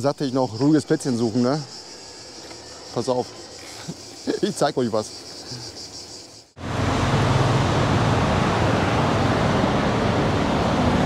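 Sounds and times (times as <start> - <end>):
crickets chirping: 0.0 - 7.6.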